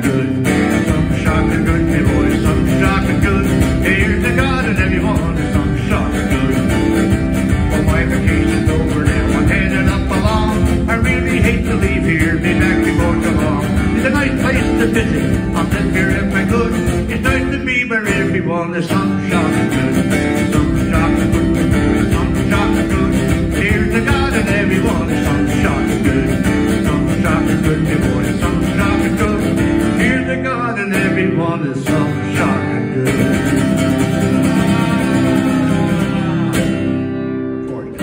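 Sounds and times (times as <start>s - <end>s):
acoustic guitar strumming: 0.0s - 38.0s.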